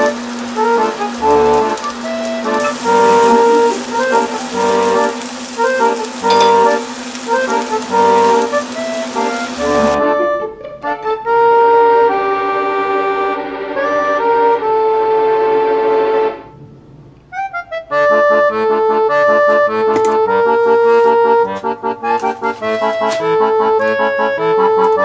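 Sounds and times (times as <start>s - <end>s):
rhythmic tune: 0.0s - 10.4s
instrumental music with held notes: 0.0s - 25.0s.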